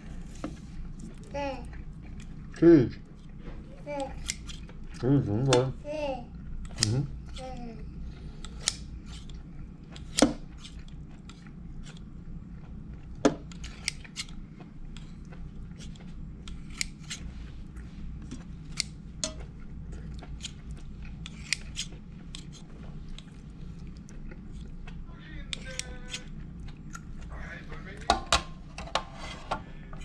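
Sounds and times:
shears snipping against steel: 4.0 - 4.6, 8.4 - 9.3, 21.2 - 22.5.

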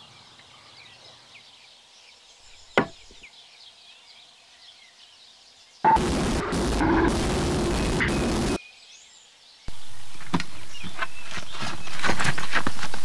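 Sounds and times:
faint birdsong: 0.0 - 13.0
loud harsh steady noise: 5.9 - 8.6.

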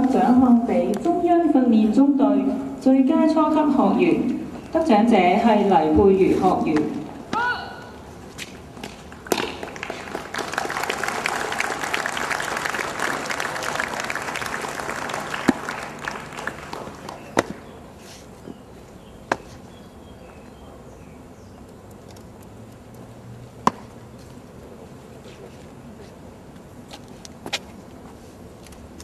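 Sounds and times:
audience applause: 9.6 - 17.3.

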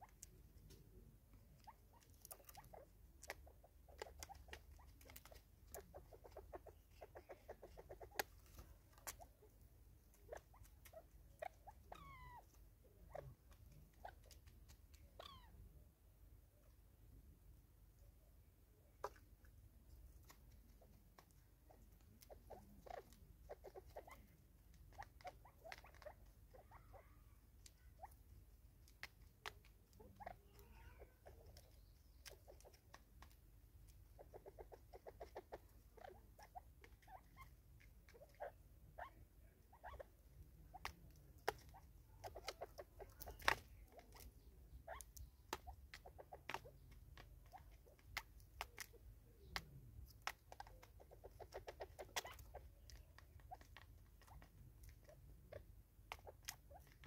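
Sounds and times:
birds pecking at plastic feeder: 0.0 - 15.2, 18.9 - 57.0.

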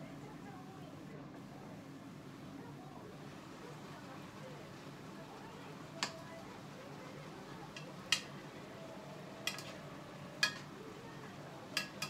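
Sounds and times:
utensil clinking against pan: 9.4 - 9.8, 10.4 - 10.7, 11.8 - 12.0.

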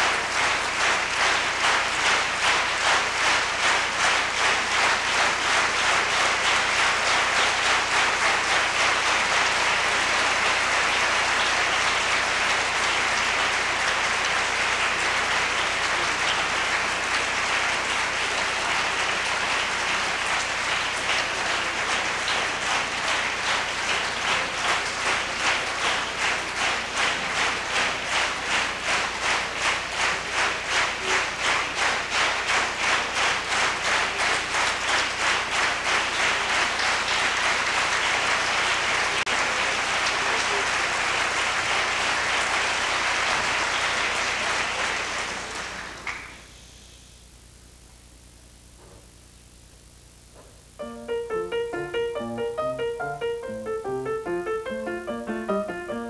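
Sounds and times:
rhythmic unison clapping: 0.0 - 46.3, 50.8 - 56.0
audience applauding: 0.0 - 46.4, 50.8 - 56.0.

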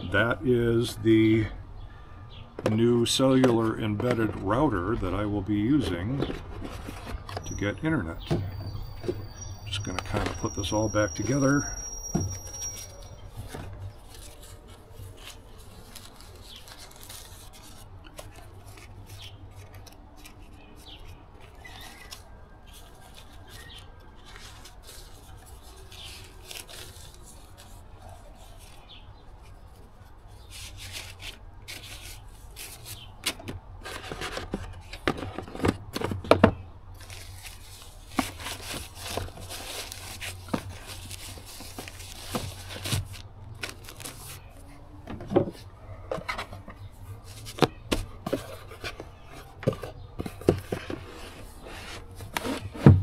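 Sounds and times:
packaging bag rustling: 8.7 - 28.9, 37.0 - 44.8.

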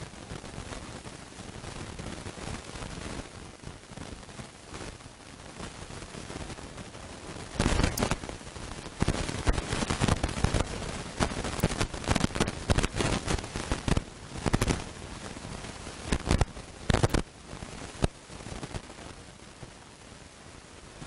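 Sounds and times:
crackling and popping noise: 0.0 - 21.0.

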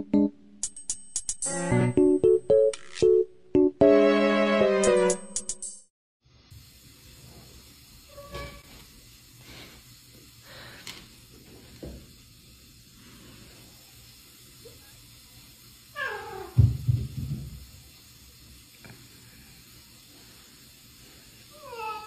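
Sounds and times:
cat meowing: 16.0 - 16.6, 21.6 - 22.0.

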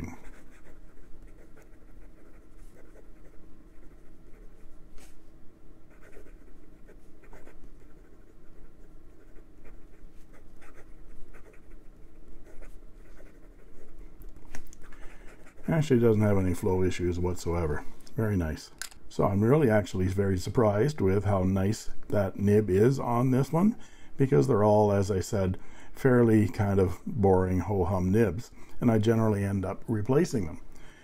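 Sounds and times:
pen nib scratching on paper: 0.0 - 4.8, 5.9 - 15.8.

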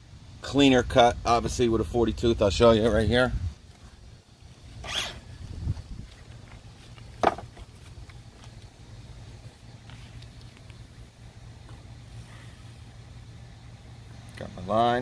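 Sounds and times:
handling rustle: 3.6 - 11.0
saw knocking on wooden board: 7.2 - 7.5
soft thump: 7.2 - 7.6.

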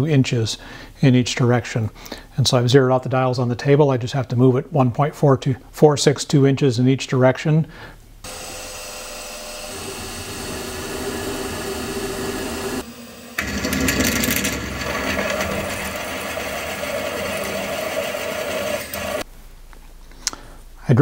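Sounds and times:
drill bit cutting steel: 8.3 - 19.2
milling machine spindle running: 8.3 - 19.2.

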